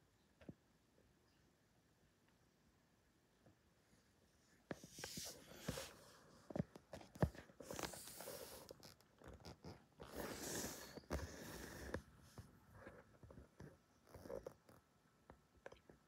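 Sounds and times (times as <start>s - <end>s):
soft rustling and scuffing: 4.7s - 13.2s.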